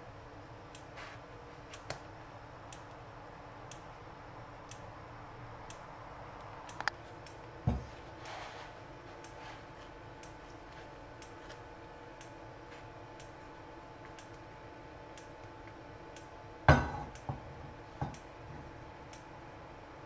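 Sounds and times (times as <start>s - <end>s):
low steady hum: 0.0s - 20.0s
faint regular ticking: 0.3s - 1.0s, 1.6s - 17.3s, 18.1s - 19.4s
knock on frying pan: 16.7s - 17.4s.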